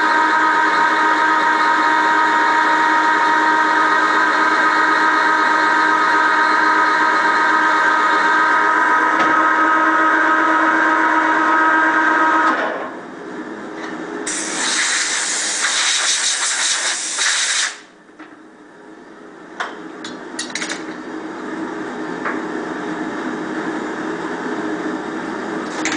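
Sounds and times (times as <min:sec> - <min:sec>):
metal lathe cutting whine: 0:00.0 - 0:12.6
loud hiss: 0:14.3 - 0:17.9.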